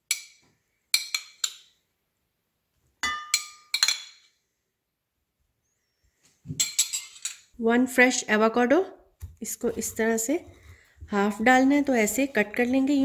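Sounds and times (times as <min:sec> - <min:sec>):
metal spoon clinking ceramic dishes: 0:00.1 - 0:01.8, 0:03.0 - 0:04.3, 0:06.6 - 0:07.5.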